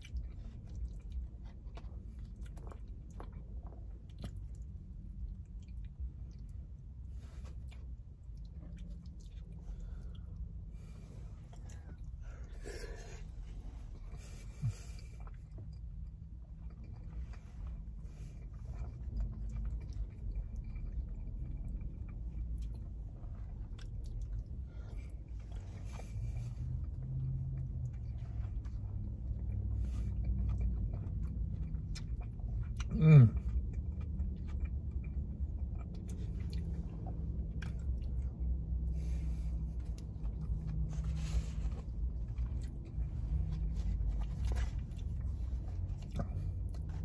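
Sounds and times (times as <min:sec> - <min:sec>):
low rumble inside car: 0:00.0 - 0:47.0
man chewing food: 0:00.0 - 0:47.0
man humming: 0:32.9 - 0:33.4.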